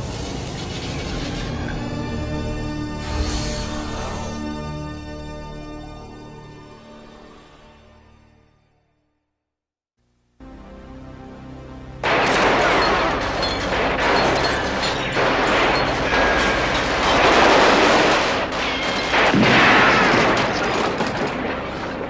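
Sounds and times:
automatic gunfire: 12.0s - 22.0s.

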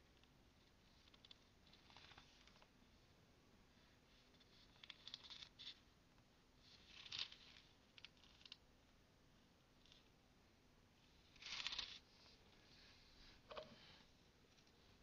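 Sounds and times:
book pages rustling: 0.9s - 2.7s.

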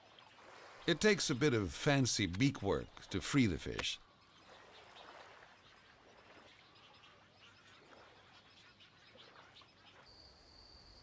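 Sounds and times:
soft bird chirps: 4.0s - 11.0s.

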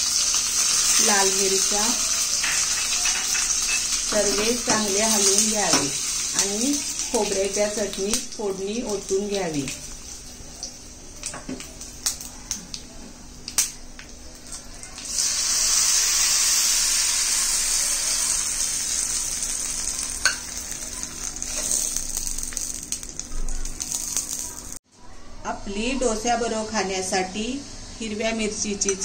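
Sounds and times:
hot oil sizzling: 0.0s - 24.8s
seeds popping in hot oil: 10.6s - 24.8s.

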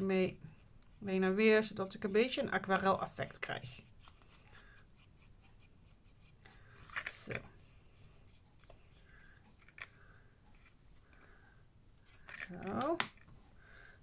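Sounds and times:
paintbrush on paper: 0.0s - 9.6s.

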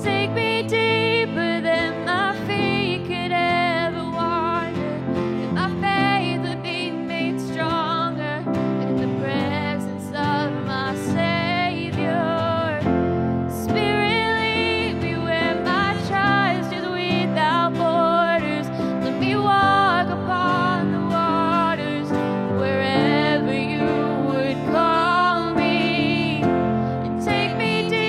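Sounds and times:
acoustic guitar: 0.0s - 28.0s
held band chords: 0.0s - 28.0s
lead vocal singing: 18.6s - 28.0s.

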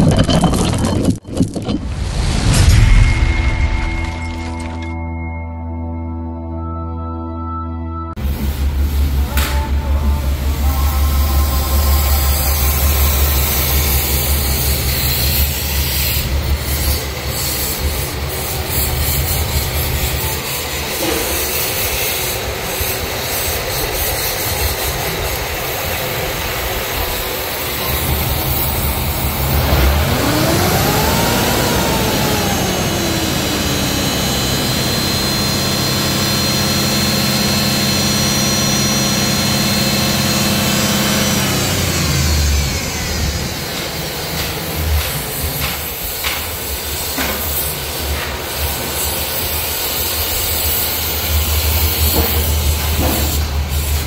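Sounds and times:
high whine: 1.2s - 46.4s
car engine idling: 8.2s - 17.4s
engine revving: 8.2s - 21.6s, 24.3s - 45.7s.

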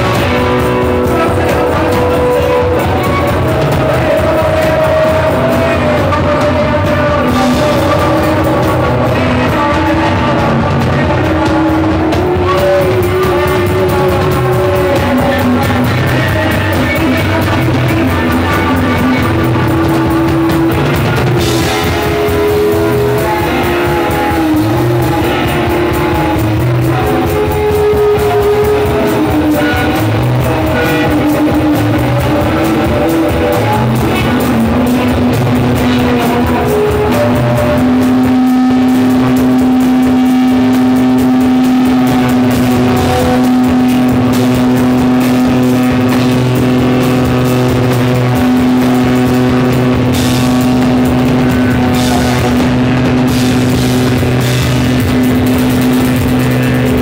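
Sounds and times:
drum kit: 0.0s - 57.0s
electric guitars: 0.0s - 57.0s
held low drone note: 16.6s - 57.0s.

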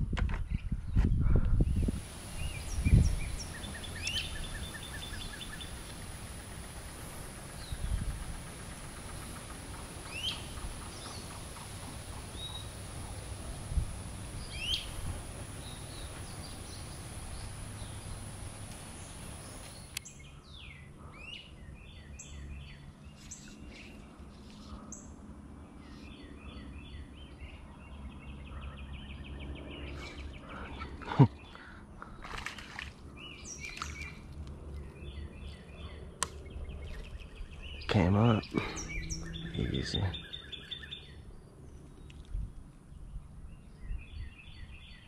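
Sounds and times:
songbirds chirping: 0.4s - 45.0s
outdoor hiss: 1.8s - 20.0s
bird trill: 35.1s - 41.9s.

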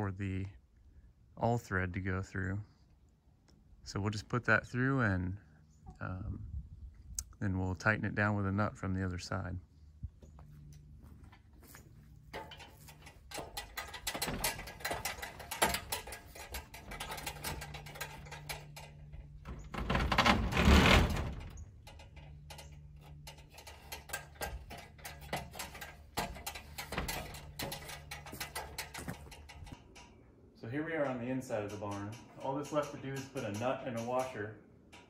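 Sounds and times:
metal ladder knocks and clanks: 10.6s - 30.2s, 30.8s - 35.0s
metal scraping rattle: 11.0s - 35.0s.

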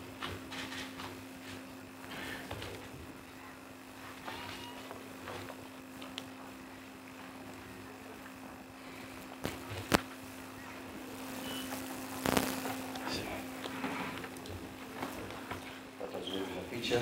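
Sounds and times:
low hum: 3.3s - 16.0s
sharp clicks: 11.3s - 13.0s.

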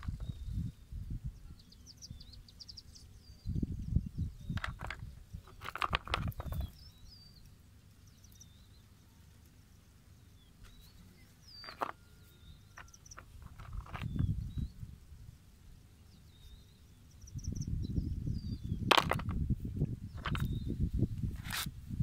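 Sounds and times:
small birds chirping: 0.0s - 21.6s
stones knocking: 4.5s - 6.8s, 11.6s - 12.0s, 12.8s - 14.3s, 18.8s - 19.4s, 20.2s - 20.5s
rustling handling noise: 12.7s - 14.2s.

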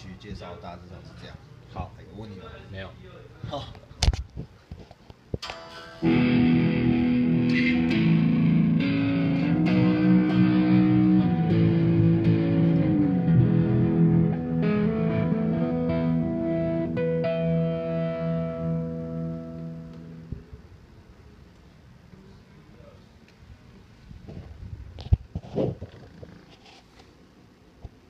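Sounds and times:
electric guitar chords: 5.4s - 20.6s.

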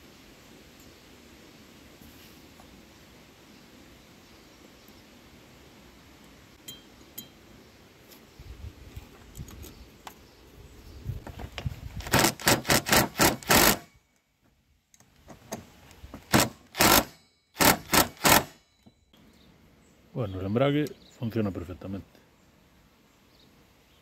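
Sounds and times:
impact driver hammering: 16.3s - 18.6s.

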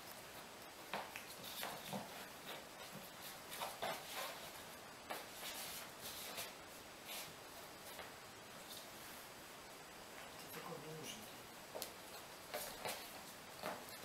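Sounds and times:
puppy claws on laminate floor: 0.0s - 6.6s, 11.7s - 14.0s
person's sandalled footsteps: 0.0s - 9.4s, 11.6s - 14.0s.

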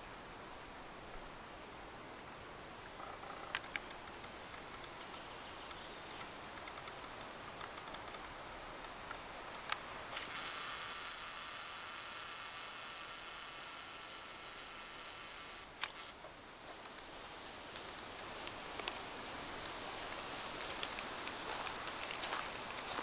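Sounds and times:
handling clicks: 3.5s - 5.2s, 6.1s - 10.3s
camera zoom motor whirring: 10.1s - 16.2s.

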